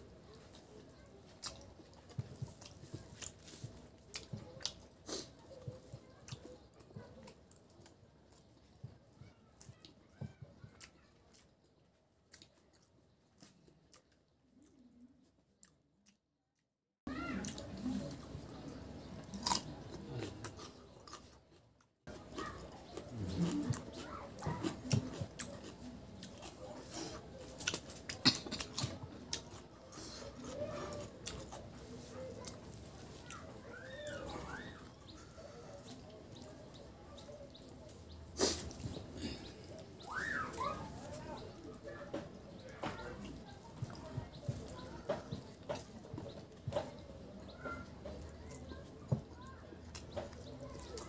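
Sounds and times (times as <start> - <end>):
close chewing with mouth clicks: 0.0 - 16.2, 17.4 - 51.0
crunching: 17.4 - 41.6.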